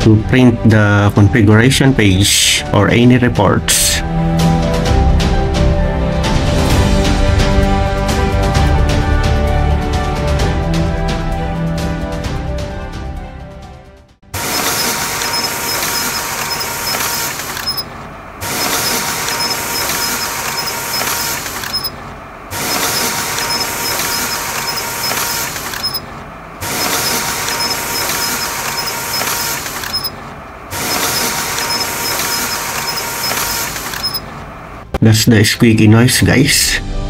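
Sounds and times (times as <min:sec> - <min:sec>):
printer running: 0:14.4 - 0:34.8.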